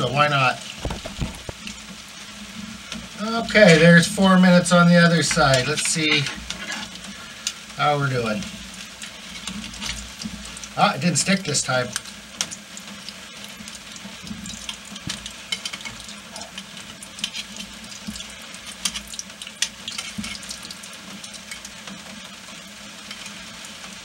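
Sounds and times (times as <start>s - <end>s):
dough sizzling in hot oil: 0.0s - 24.0s
metal spoon scraping a pot: 5.2s - 7.0s, 17.2s - 17.8s, 19.9s - 20.5s.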